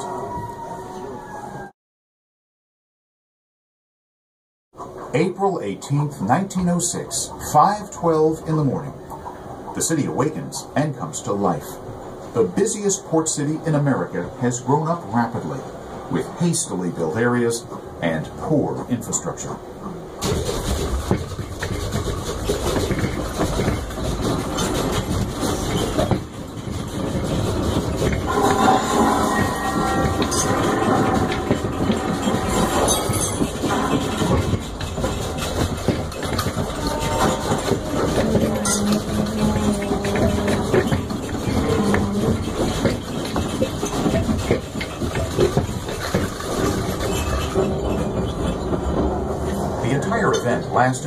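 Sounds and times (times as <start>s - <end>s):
deep continuous rumble: 5.1s - 51.0s
rattling and clattering: 20.2s - 51.0s.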